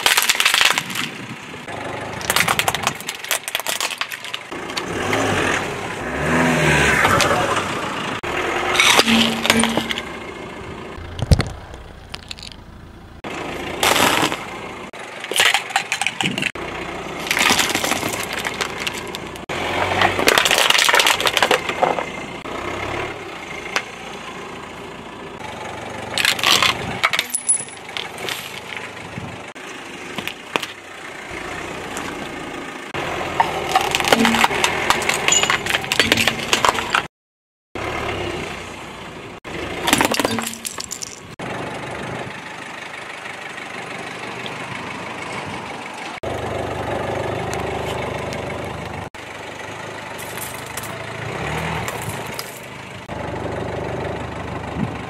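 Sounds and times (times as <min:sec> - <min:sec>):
tyre crunching objects: 0:00.0 - 0:07.7, 0:13.7 - 0:14.5, 0:17.2 - 0:22.1, 0:26.2 - 0:30.8, 0:33.0 - 0:37.1
car engine running: 0:00.9 - 0:37.1, 0:37.8 - 0:55.0
coins clinking: 0:27.2 - 0:27.9.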